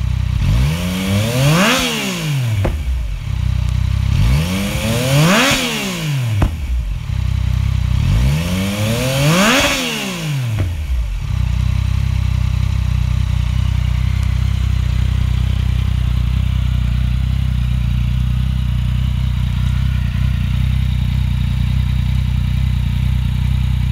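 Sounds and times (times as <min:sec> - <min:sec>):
motorcycle engine idling: 0:00.0 - 0:23.9.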